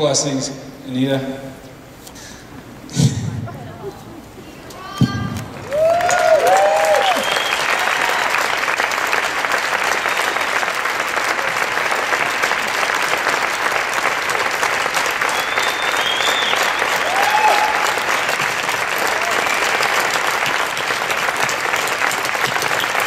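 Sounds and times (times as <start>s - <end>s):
crowd applauding: 5.3s - 23.0s.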